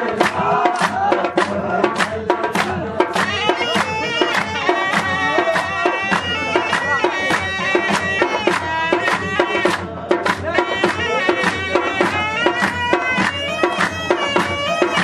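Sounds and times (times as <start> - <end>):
fast percussive beat: 0.0 - 15.0
audience clapping along: 0.1 - 15.0
reed pipe melody: 3.2 - 15.0.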